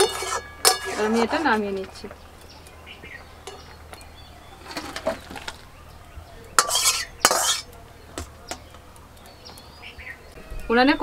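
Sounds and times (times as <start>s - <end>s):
metal spoon scraping a wok: 0.0s - 1.8s, 6.6s - 7.8s.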